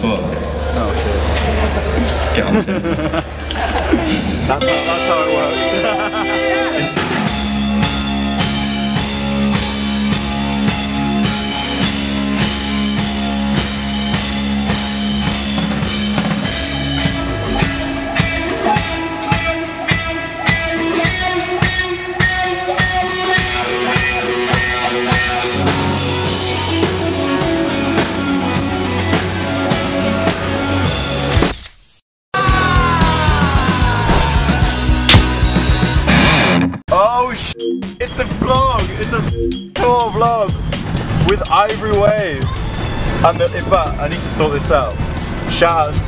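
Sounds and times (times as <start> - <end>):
bass guitar: 0.0 - 31.3, 32.4 - 46.0
electric guitar: 4.5 - 30.9, 32.4 - 36.8
drum kit: 6.8 - 31.4, 32.4 - 45.8.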